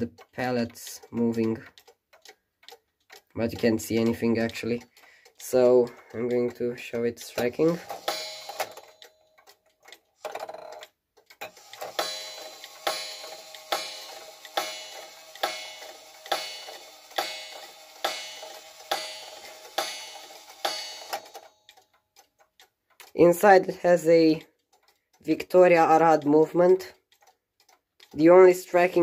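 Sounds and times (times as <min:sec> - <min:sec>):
clock gong striking: 0:08.0 - 0:08.8, 0:11.8 - 0:21.4.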